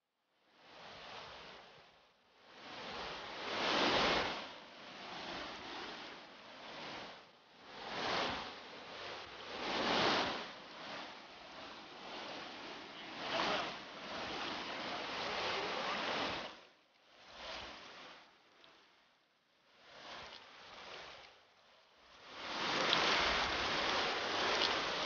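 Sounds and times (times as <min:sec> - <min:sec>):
whitewater rushing in river rapid: 0:09.5 - 0:16.6, 0:22.2 - 0:25.0.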